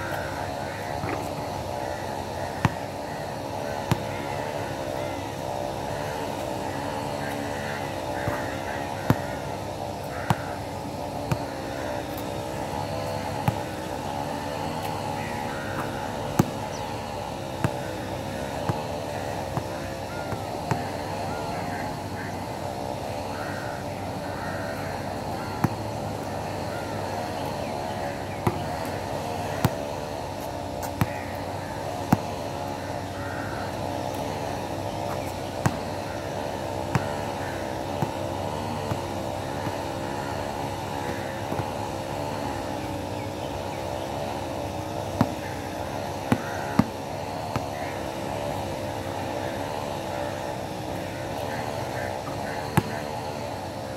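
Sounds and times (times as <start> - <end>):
basketball bouncing on court: 0.0 - 42.8, 43.6 - 50.0, 51.4 - 53.4
steady wavering drone: 0.0 - 53.9
basketball bouncing on hard court: 3.8 - 4.4, 8.2 - 9.4, 10.2 - 10.5, 11.2 - 11.5, 12.1 - 21.2, 25.4 - 26.7, 27.3 - 30.0, 31.9 - 32.5, 35.1 - 36.0, 36.8 - 37.3, 37.9 - 40.3, 45.1 - 45.4, 46.2 - 47.7, 52.7 - 53.2
bird calls: 12.9 - 17.5, 26.4 - 29.6, 30.9 - 38.0.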